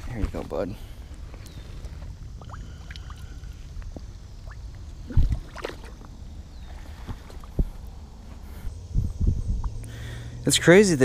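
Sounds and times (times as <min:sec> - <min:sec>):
water sloshing and trickling: 0:01.3 - 0:08.1.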